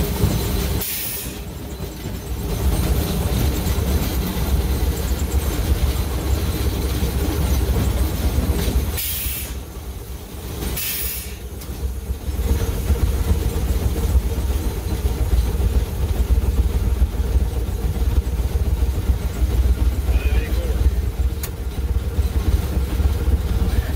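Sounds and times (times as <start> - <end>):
steam locomotive rumble: 0.0 - 23.9
steam hiss bursts: 0.7 - 1.5, 8.9 - 9.7, 10.6 - 11.5.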